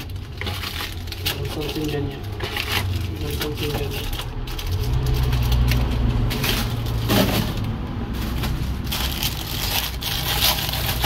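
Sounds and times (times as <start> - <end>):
packaging rustling and tearing: 0.0 - 11.0.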